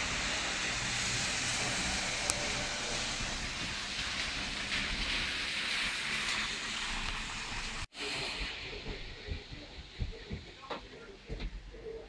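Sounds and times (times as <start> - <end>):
rain on wet street: 0.9 - 7.8.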